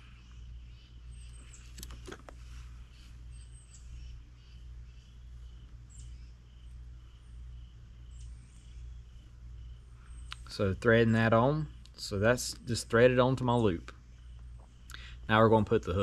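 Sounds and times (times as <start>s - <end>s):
faint high chirps: 0.0s - 10.8s
low steady hum: 0.0s - 16.0s.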